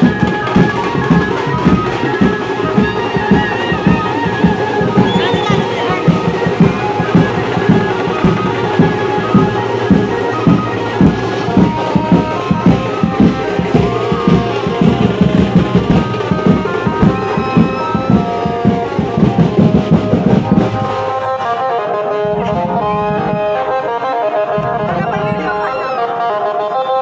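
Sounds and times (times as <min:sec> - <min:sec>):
fast drum beat: 0:00.0 - 0:21.2
melody with held notes: 0:00.0 - 0:27.0.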